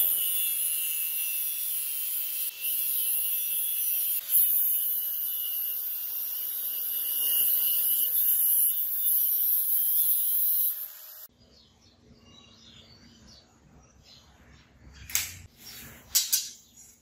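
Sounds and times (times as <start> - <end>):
angle grinder cutting steel: 0.0 - 11.3.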